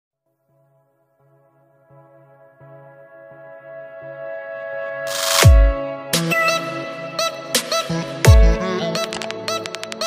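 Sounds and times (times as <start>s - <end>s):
music with sustained chords: 0.3s - 10.0s.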